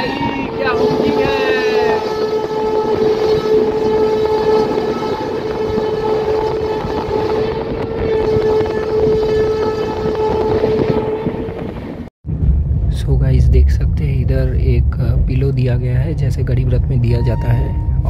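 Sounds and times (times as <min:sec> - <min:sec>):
train horn: 0:00.0 - 0:12.1
rush of wind and wheels on rail: 0:00.0 - 0:18.0.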